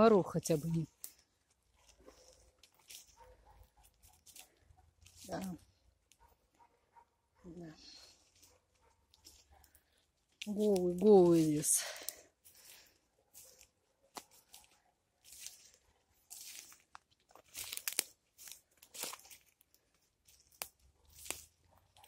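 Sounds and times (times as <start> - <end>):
footsteps through leaves: 1.7 - 5.6, 10.4 - 21.6.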